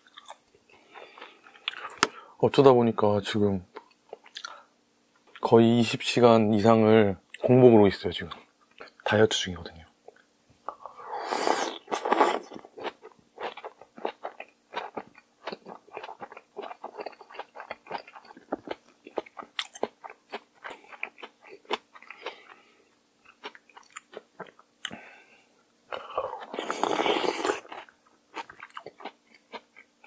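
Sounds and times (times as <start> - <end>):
loud slurp: 11.1 - 12.4, 26.4 - 27.7
wet chewing with crisp clicks: 12.5 - 22.6, 23.3 - 25.0, 27.6 - 29.9.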